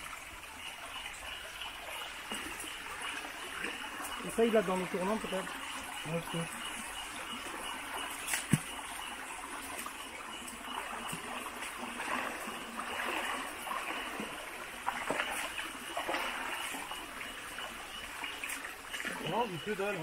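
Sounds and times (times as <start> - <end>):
stream trickling: 0.0 - 20.0
footsteps splashing in water: 8.0 - 8.9, 9.6 - 16.9.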